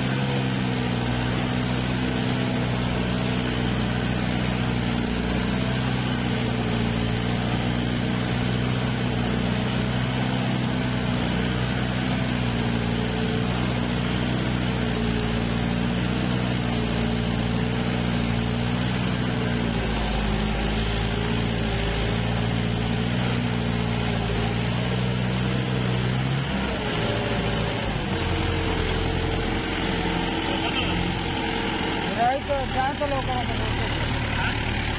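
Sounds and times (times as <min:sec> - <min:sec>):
tractor diesel engine running: 0:00.0 - 0:34.9.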